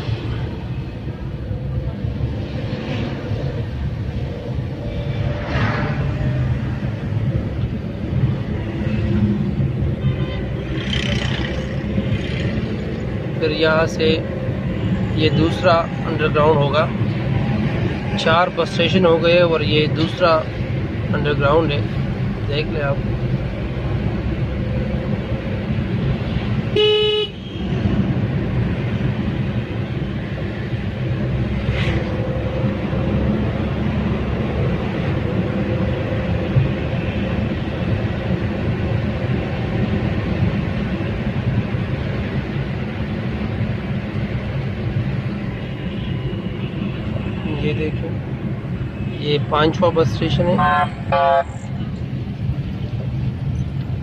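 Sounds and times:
car engine and tyres rumbling: 0.0s - 54.0s
vehicle horn blast: 26.8s - 27.6s, 50.6s - 51.6s.

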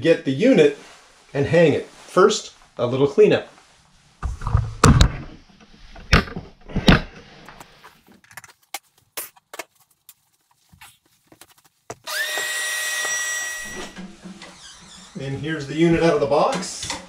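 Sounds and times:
shop vacuum motor whining: 12.1s - 15.2s.

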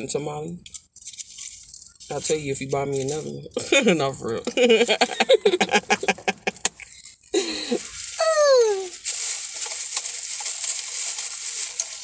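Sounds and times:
paper wrapper crinkling: 5.5s - 12.0s.

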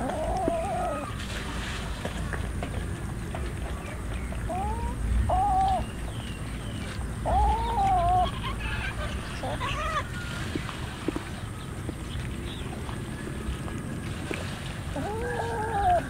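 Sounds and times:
cats meowing: 0.0s - 1.2s, 4.5s - 5.8s, 7.2s - 8.5s, 14.9s - 16.0s.

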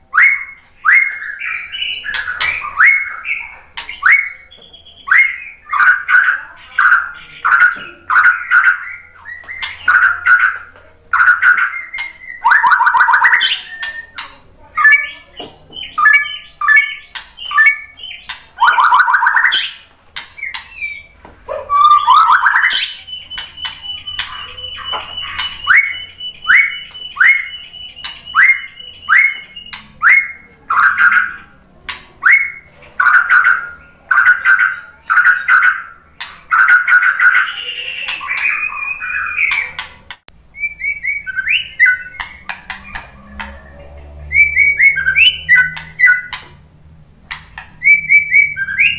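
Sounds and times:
bird singing: 0.0s - 46.6s, 47.3s - 48.9s.

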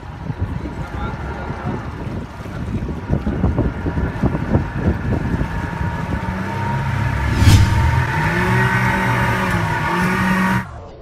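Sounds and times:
wind buffeting microphone: 0.0s - 8.6s.

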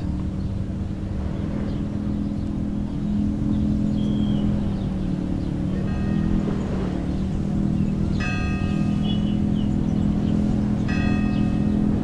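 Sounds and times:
low droning hum: 0.0s - 12.0s
bell-like chime: 5.8s - 6.4s, 8.2s - 9.3s, 10.9s - 12.0s.

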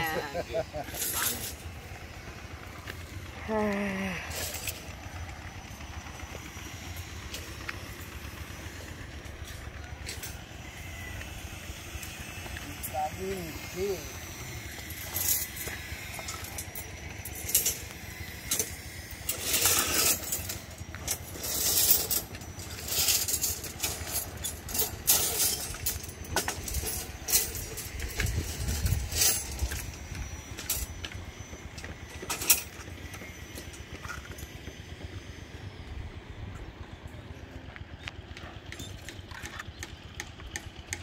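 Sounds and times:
steel bars clinking: 0.0s - 1.8s, 14.8s - 31.2s.

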